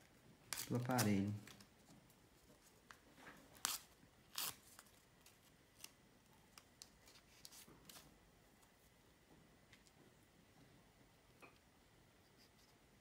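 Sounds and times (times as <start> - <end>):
sachet tearing: 0.5 - 1.7, 3.6 - 5.9.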